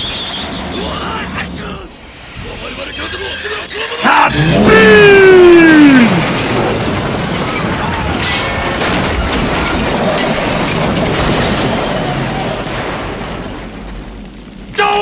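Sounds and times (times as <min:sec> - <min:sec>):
train crash rumble: 0:04.3 - 0:14.7
metal clatter: 0:06.2 - 0:14.4.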